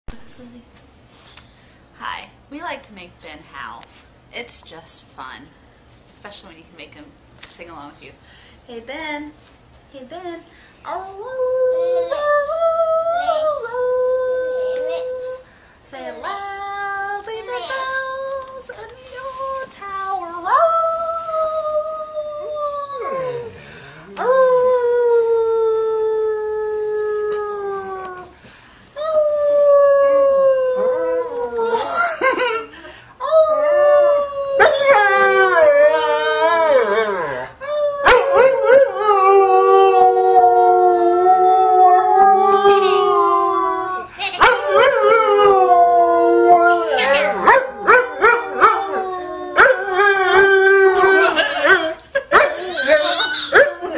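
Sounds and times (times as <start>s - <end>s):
woman imitating a howl: 20.5s - 28.4s, 29.0s - 32.1s, 33.2s - 53.9s
dog howling: 20.6s - 23.6s, 29.0s - 31.9s, 33.3s - 53.9s.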